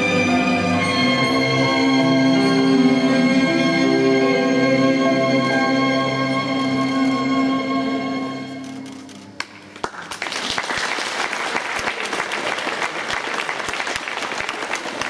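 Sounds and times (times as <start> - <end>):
audience applause: 9.8 - 15.0.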